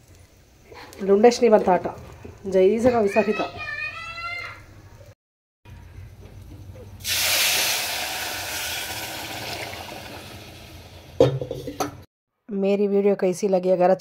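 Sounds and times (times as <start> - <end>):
water sizzling in hot pot: 7.0 - 11.6.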